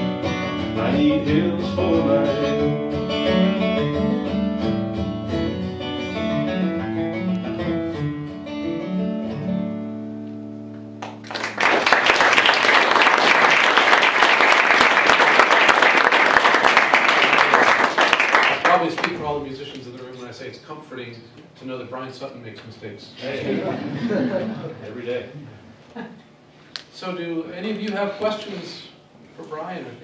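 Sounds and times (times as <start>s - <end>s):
acoustic guitar playing: 0.0s - 11.3s
audience applause: 11.0s - 19.2s.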